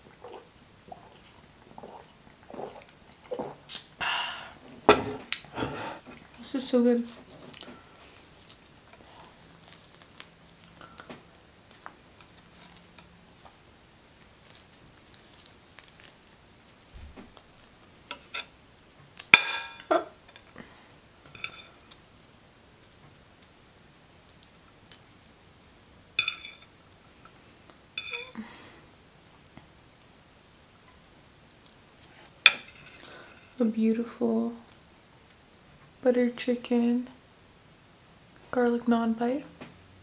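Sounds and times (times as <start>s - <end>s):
cutlery clinking on a plate: 19.3s - 19.9s, 21.3s - 21.8s, 26.2s - 26.7s, 28.0s - 28.3s.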